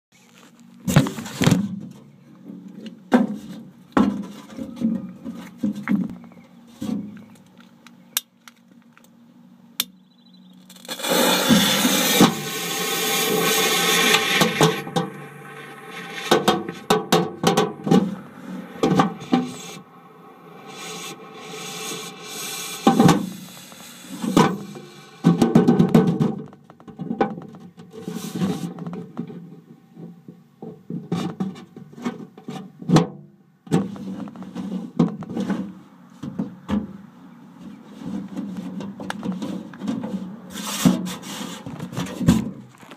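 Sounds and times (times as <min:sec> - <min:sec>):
knocks and thumps inside a mailbox: 0:24.3 - 0:27.7.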